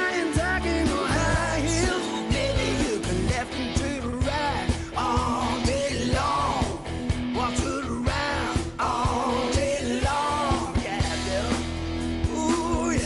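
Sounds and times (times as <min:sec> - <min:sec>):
rock music with singing: 0:00.0 - 0:13.0
steady drum beat: 0:00.0 - 0:13.0.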